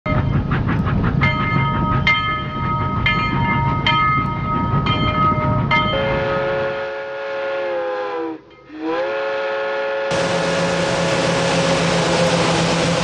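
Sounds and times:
train rumbling: 0.0s - 13.0s
locomotive bell clanging: 1.2s - 6.6s, 8.4s - 8.8s
multi-tone steam whistle: 5.9s - 13.0s.

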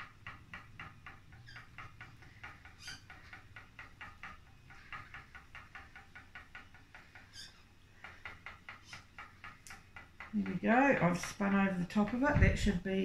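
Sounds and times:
spinning wheel ticking: 0.0s - 12.2s.

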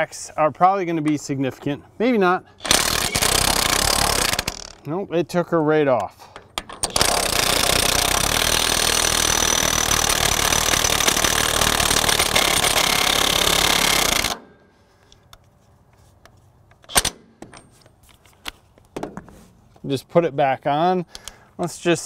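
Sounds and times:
impact wrench hammering: 2.6s - 4.8s, 6.4s - 14.5s.

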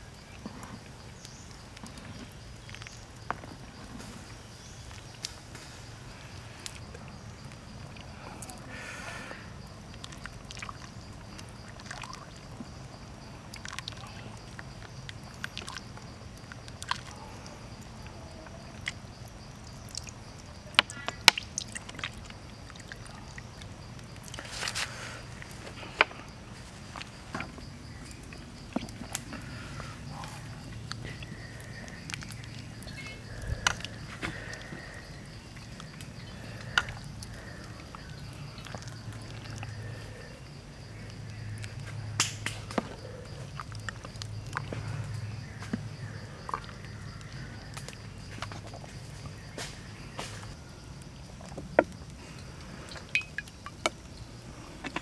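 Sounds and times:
liquid sloshing: 9.9s - 12.8s.

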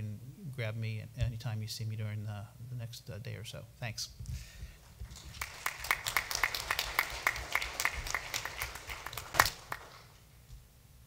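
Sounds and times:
applause: 4.9s - 10.2s.

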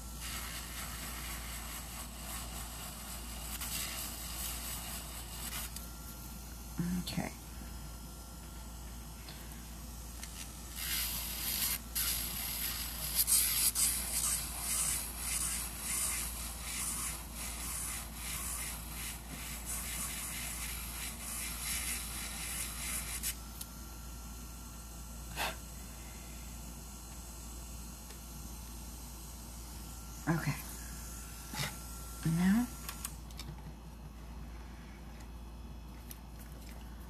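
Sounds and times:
tool scraping acrylic nail: 0.2s - 5.8s, 10.2s - 23.4s.

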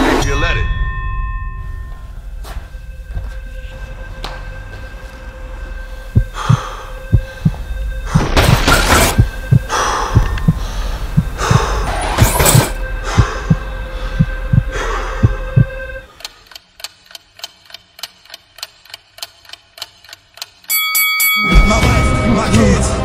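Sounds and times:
low hum: 0.2s - 16.1s
heavy breaths: 5.5s - 8.4s, 9.4s - 16.5s
heartbeat thumps: 6.1s - 12.4s, 13.0s - 16.0s.

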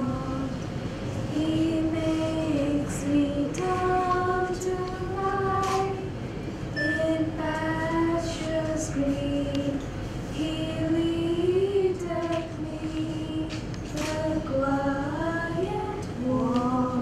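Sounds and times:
girls singing into a microphone: 0.0s - 0.6s, 1.3s - 6.2s, 7.0s - 17.0s.

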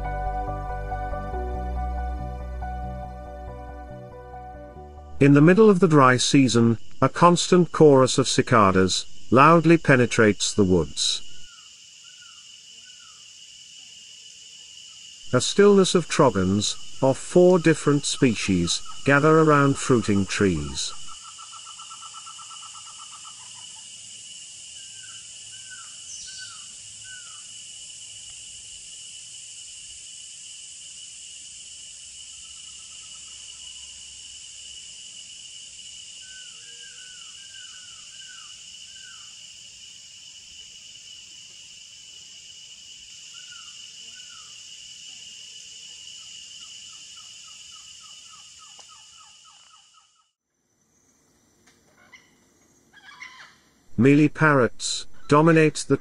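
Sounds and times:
cicadas droning: 0.0s - 56.0s
birds calling: 15.3s - 23.6s.

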